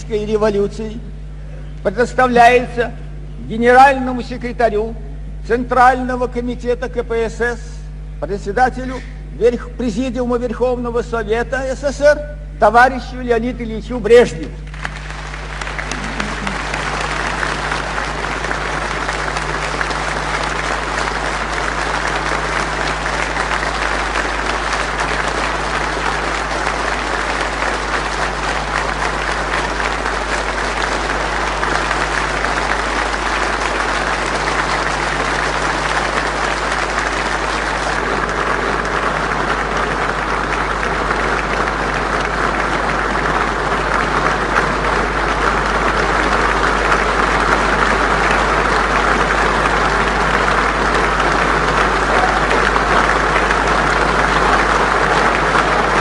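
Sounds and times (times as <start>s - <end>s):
low recording hum: 0.0s - 56.0s
audience applauding: 14.6s - 56.0s.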